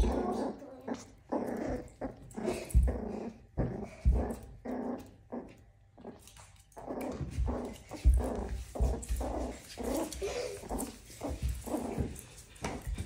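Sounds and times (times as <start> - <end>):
puppy growling and whining: 0.0 - 13.0
dull bumps on wooden floor: 2.5 - 4.6.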